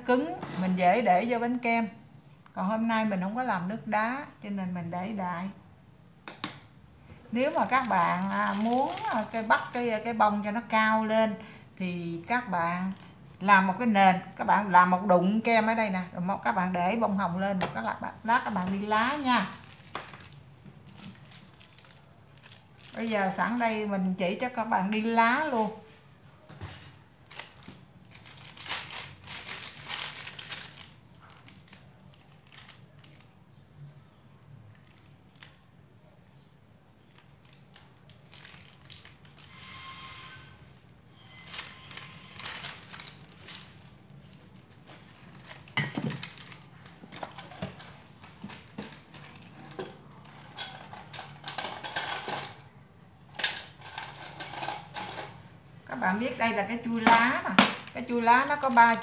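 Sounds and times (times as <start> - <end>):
plastic bag crinkling: 7.3 - 10.6, 18.4 - 24.2, 26.6 - 33.4, 34.7 - 35.6, 37.0 - 39.8, 40.7 - 52.7, 56.1 - 59.0.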